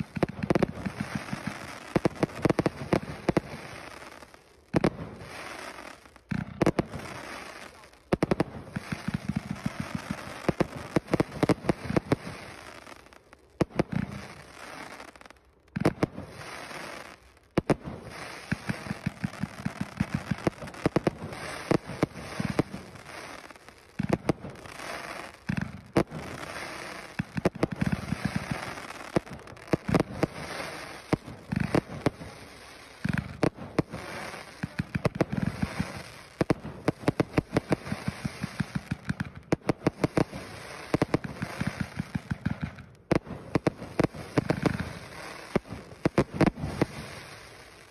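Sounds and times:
firework crackling: 0.0s - 47.9s
firework launch pops: 40.9s - 47.1s.

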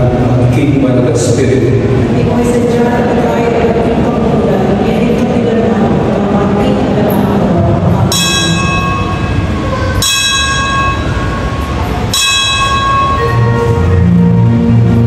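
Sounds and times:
low rumble of church: 0.0s - 15.0s
altar bells ringing: 8.1s - 14.8s.

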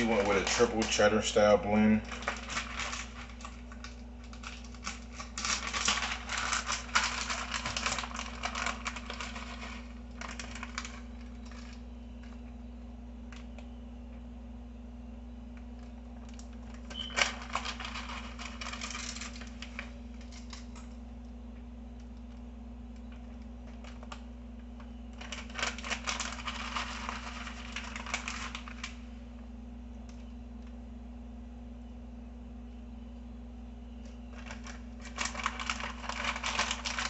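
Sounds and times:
cheese shreds crackling on foil: 0.0s - 12.6s, 15.5s - 21.3s, 22.0s - 29.3s, 34.3s - 37.0s.

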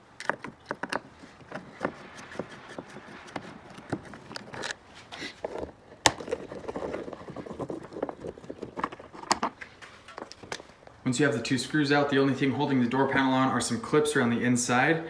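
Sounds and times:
screwdriver clicks and scrapes: 0.2s - 5.3s.

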